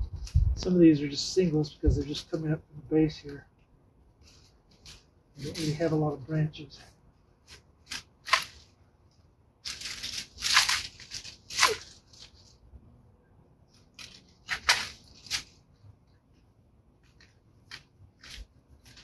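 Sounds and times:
dry branches and leaves rustling: 4.2 - 6.2, 7.4 - 12.7, 13.7 - 15.8, 17.0 - 19.0
loppers snipping branches: 9.6 - 12.3, 13.9 - 15.6.

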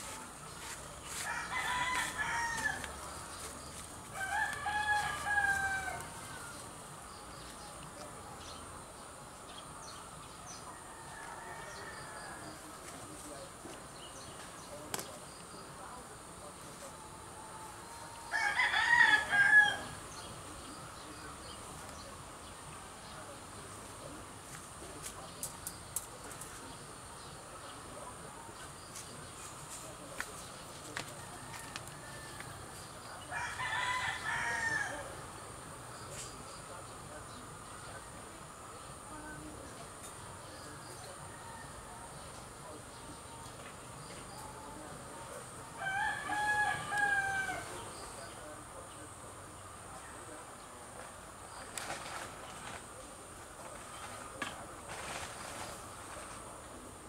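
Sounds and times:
rooster crowing: 1.1 - 2.9, 4.1 - 6.6, 17.6 - 20.0, 33.3 - 35.1, 45.8 - 47.8.

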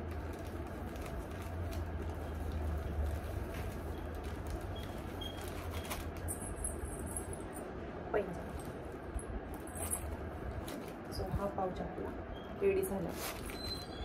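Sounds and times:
plastic pouch rustling: 0.0 - 6.5, 13.1 - 14.0
steady low hum: 0.0 - 14.0.

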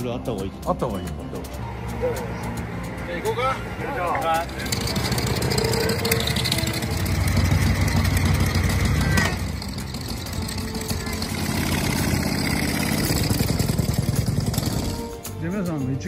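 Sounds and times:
motorcycle engines pulling away: 0.0 - 15.4.

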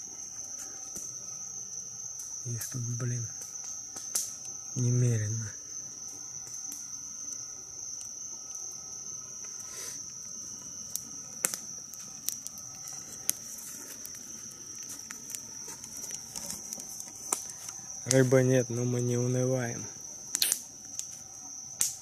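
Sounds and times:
crickets chirring: 0.0 - 22.0
sharp clicks and snaps: 20.3 - 21.2, 21.8 - 22.0.

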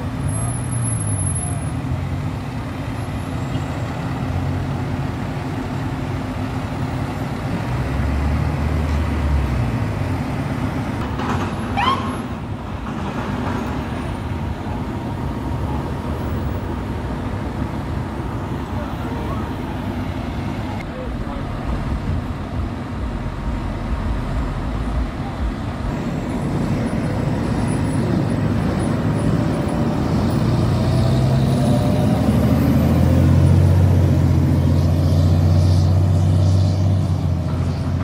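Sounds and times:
street traffic: 0.0 - 38.0
truck diesel engine passing: 0.0 - 38.0.

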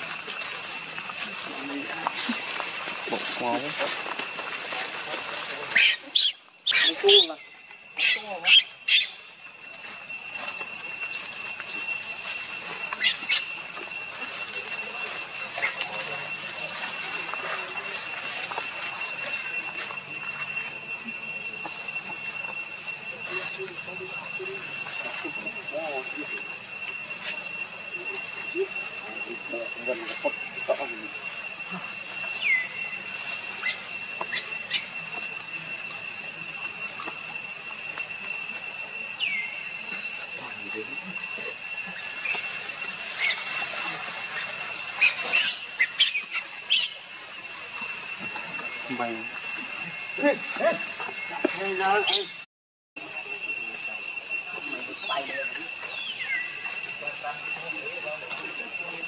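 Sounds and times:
high-pitched insect drone: 0.0 - 59.0
baby monkey squealing: 5.7 - 7.3, 8.0 - 9.2, 13.0 - 13.5, 43.2 - 43.5, 44.4 - 47.0.

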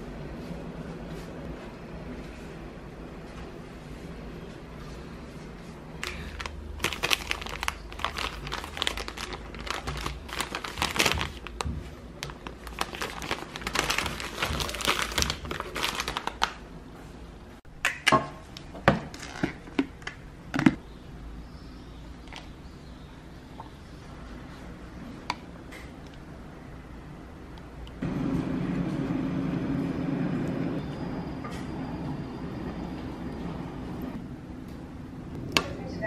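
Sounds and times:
snack packaging crinkling: 6.0 - 16.6.

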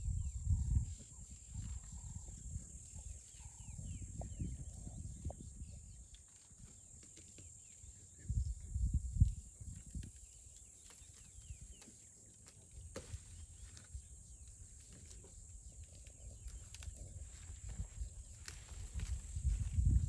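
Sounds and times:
high insect drone: 0.0 - 20.0
branches rustling: 9.6 - 20.0
twigs snapping: 14.7 - 19.7.

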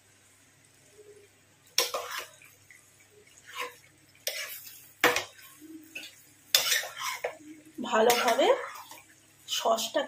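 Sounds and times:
metal spatula scraping a pan: 1.8 - 2.6, 3.2 - 9.1.

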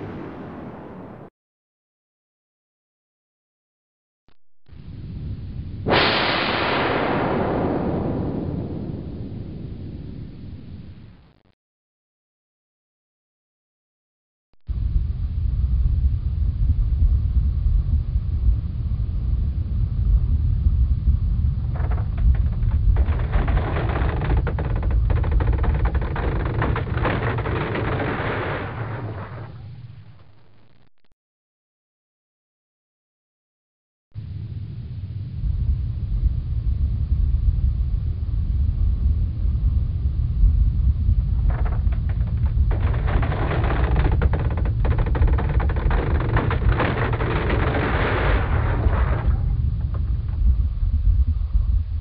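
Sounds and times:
wind buffeting microphone: 14.7 - 29.9, 35.4 - 52.0.

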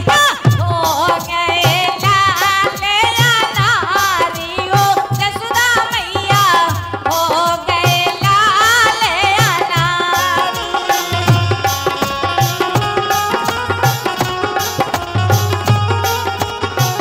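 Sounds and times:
woman singing: 0.0 - 12.0
hand drum beating: 0.0 - 17.0.

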